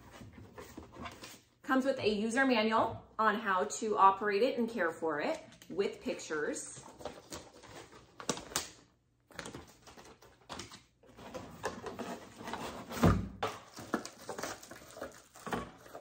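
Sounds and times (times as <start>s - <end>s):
cardboard rustling and scraping: 0.0s - 1.5s, 9.4s - 16.0s.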